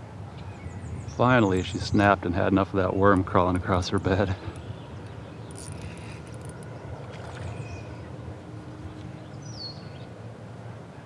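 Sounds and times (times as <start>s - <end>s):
wind and water rumble: 0.0s - 11.0s
bird chirp: 3.8s - 10.2s.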